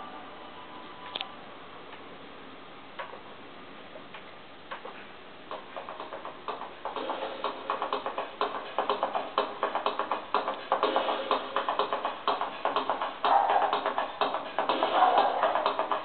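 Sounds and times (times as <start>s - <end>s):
rhythmic ticking beat music: 5.5s - 16.0s.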